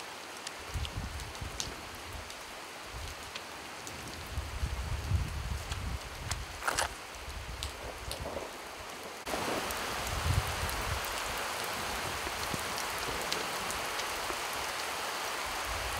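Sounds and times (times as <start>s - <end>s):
rain falling: 0.0s - 15.9s
raindrops ticking: 0.1s - 14.9s.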